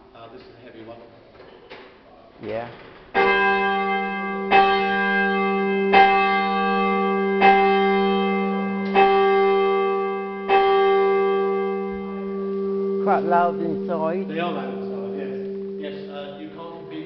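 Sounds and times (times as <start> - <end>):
heavy church bell chiming: 3.2 - 17.0
steady hum: 4.2 - 17.0.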